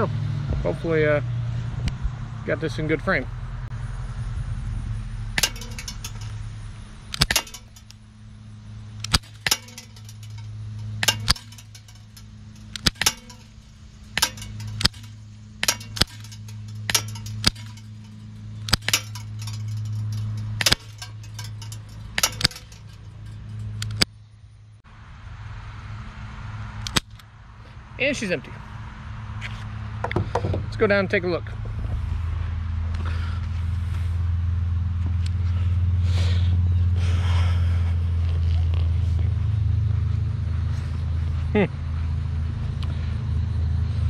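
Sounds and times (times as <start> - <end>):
low hum: 3.3 - 26.2
metallic clink of bb hitting trap: 5.4 - 6.4, 7.2 - 8.0, 9.0 - 24.0.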